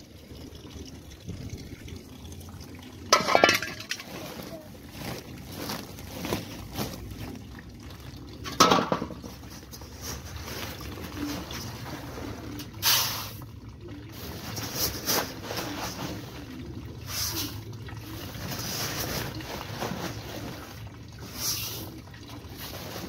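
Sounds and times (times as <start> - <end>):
water splashing in metal tub: 0.0 - 23.0.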